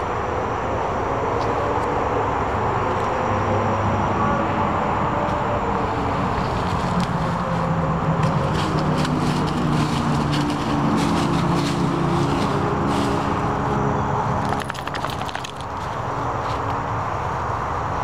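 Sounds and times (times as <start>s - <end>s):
engine drone: 0.0s - 18.0s
dog rustling through leafy bushes: 5.8s - 13.8s.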